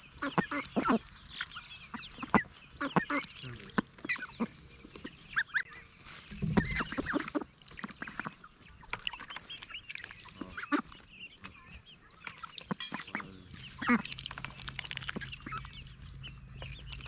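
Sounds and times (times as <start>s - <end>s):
beaks tapping on bowl: 0.0s - 5.1s, 12.2s - 17.0s
ducks quacking: 0.0s - 17.0s
hens clucking and cheeping: 0.0s - 17.0s.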